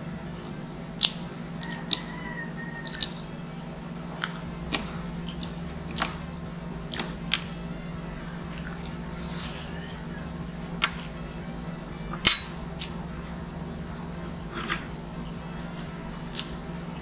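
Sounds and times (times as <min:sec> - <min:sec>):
steady low hum: 0:00.0 - 0:17.0
chewing: 0:00.3 - 0:03.4, 0:04.0 - 0:07.5, 0:08.4 - 0:09.8, 0:14.4 - 0:17.0.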